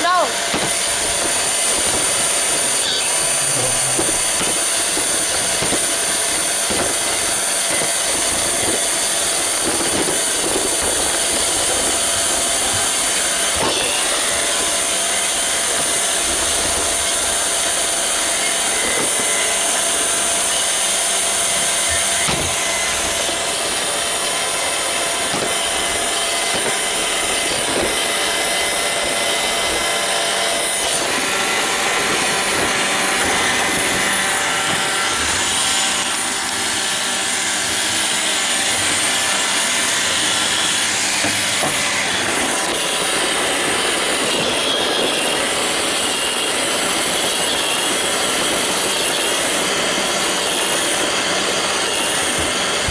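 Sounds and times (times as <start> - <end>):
robot vacuum whirring: 0.0 - 52.9.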